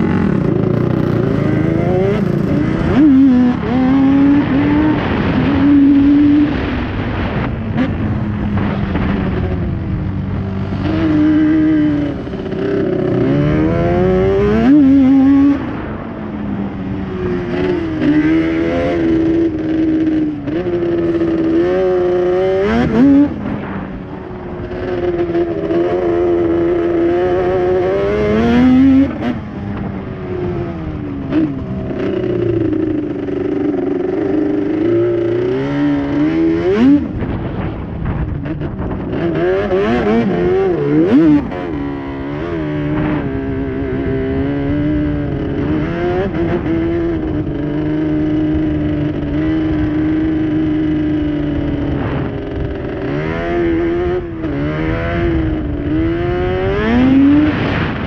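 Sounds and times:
quad engine revving: 0.0 - 8.0, 10.6 - 15.9, 38.4 - 58.0.

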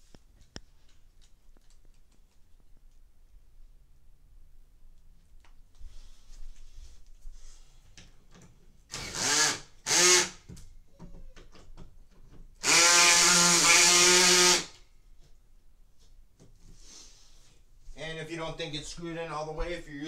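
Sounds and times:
cordless drill driving bolt: 8.9 - 10.5, 12.6 - 14.8.

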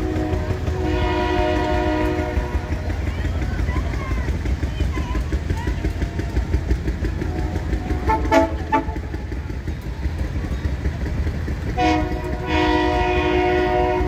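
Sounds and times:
railcar horn: 0.0 - 3.2, 7.0 - 9.5, 11.6 - 14.0
low rumble of rail motorcar: 0.0 - 14.0.

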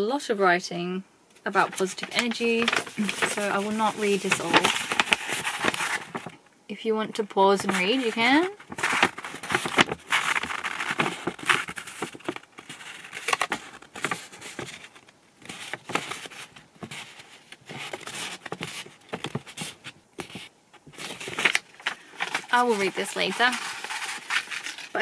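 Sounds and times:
paper scroll rustling and crackling: 1.4 - 6.4, 7.1 - 25.0.

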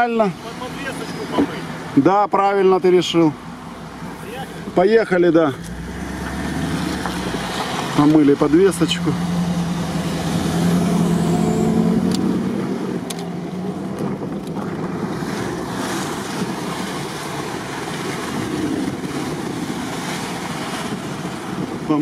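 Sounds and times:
car engine hum: 0.0 - 22.0
tyres hissing on wet road: 5.6 - 11.2.

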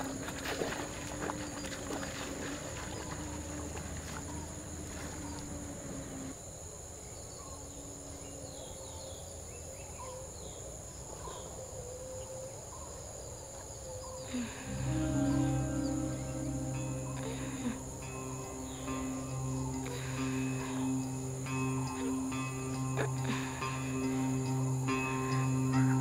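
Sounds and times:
insects droning: 0.0 - 26.0
faint bird chirps: 7.0 - 26.0.

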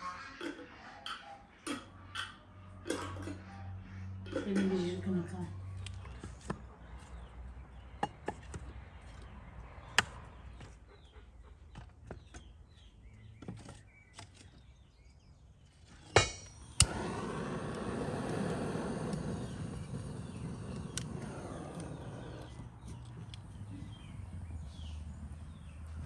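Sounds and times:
firewood knocking on brick: 16.1 - 17.2
hand torch clicking: 16.2 - 23.5
torch flame hissing: 16.8 - 22.6.

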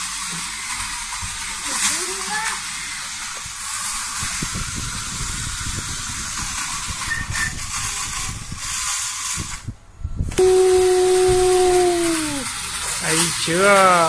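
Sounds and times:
toy train clicking on plastic track: 0.0 - 9.7, 10.6 - 14.0
steady hiss: 0.0 - 14.0
loud steady hum: 10.3 - 14.0.

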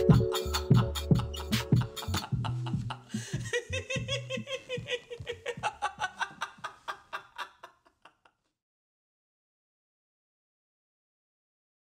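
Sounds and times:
man laughing hard: 0.0 - 8.4.

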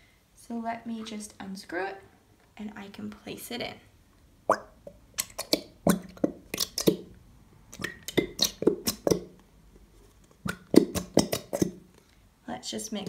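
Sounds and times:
glue bottle clicks and squelches: 4.5 - 7.1, 7.7 - 9.4, 10.3 - 11.8.

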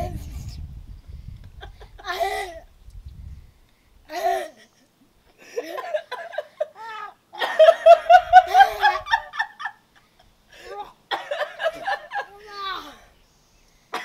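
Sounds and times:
people laughing: 7.4 - 9.8, 11.2 - 12.4.

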